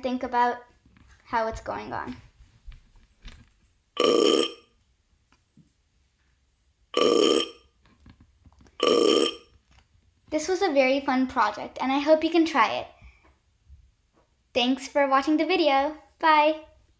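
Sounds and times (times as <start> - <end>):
recorded burp sound effect: 4.0 - 4.7, 6.9 - 7.7, 8.8 - 9.6.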